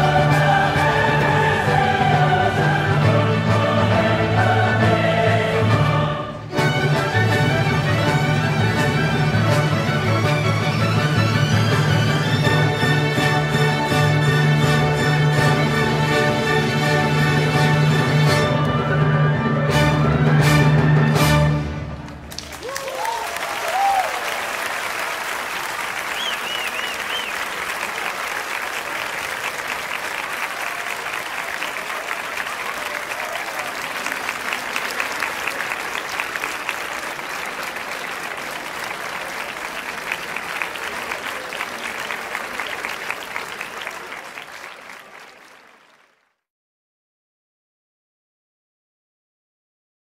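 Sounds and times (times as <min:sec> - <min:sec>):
large crowd applauding: 0:22.0 - 0:46.5
cheering shouts: 0:22.6 - 0:25.6, 0:30.2 - 0:36.5.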